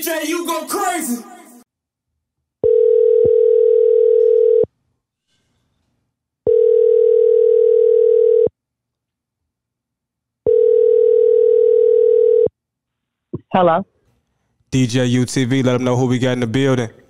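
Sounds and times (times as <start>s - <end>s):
telephone ringback tone: 2.6s - 4.7s, 6.5s - 8.5s, 10.5s - 12.5s.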